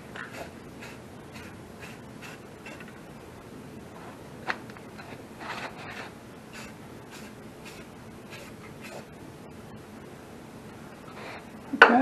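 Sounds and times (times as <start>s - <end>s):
spray can hissing: 0.2s - 3.0s, 6.5s - 9.2s.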